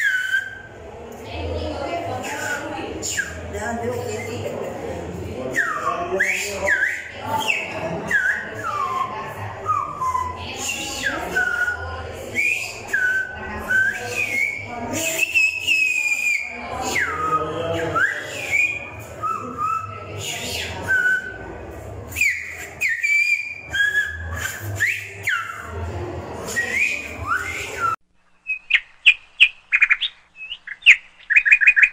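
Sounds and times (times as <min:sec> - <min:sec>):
person finger whistling glides: 0:00.0 - 0:00.7, 0:02.3 - 0:03.5, 0:05.6 - 0:11.8, 0:22.1 - 0:25.8, 0:26.5 - 0:28.7.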